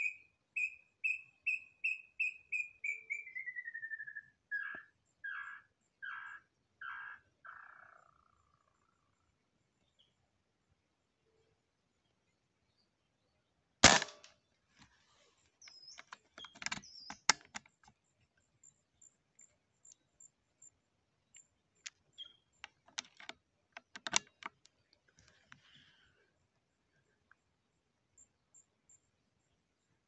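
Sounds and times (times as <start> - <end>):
air rifle shot: 13.8 - 14.3
scattered clicks: 15.6 - 18.0, 21.3 - 25.6.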